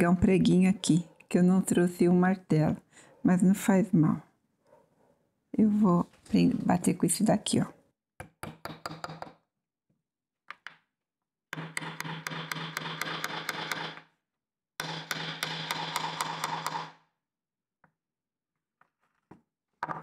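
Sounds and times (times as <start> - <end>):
pliers tapping nail into wood: 11.5 - 14.1, 14.8 - 17.0.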